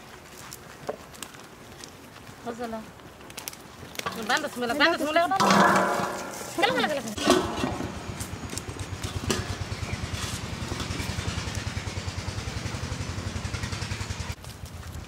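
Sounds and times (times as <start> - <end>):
small engine puttering: 6.6 - 15.0.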